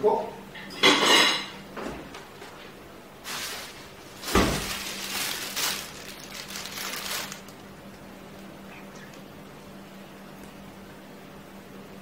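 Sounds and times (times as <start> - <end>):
plastic bag rustling: 3.2 - 8.5.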